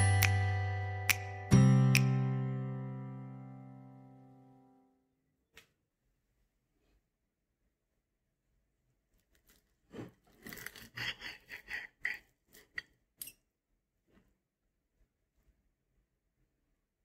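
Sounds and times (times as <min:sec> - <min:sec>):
crisp potato crust crunching: 0:09.2 - 0:11.0.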